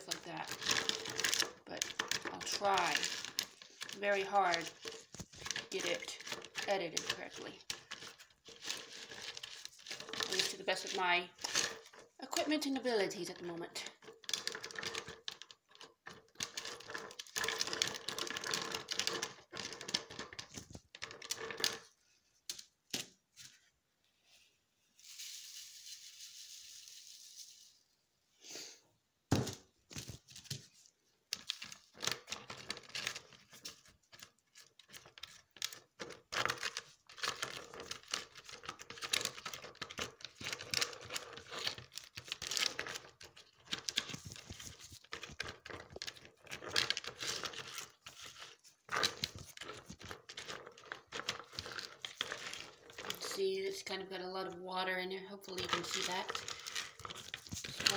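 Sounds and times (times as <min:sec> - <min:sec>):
ice stirred in plastic tub: 0:00.0 - 0:22.0, 0:30.0 - 0:57.9.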